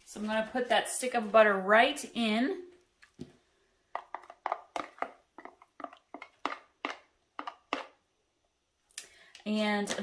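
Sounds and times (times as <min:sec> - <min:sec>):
wooden spoon scraping plastic tub: 0:04.0 - 0:08.0.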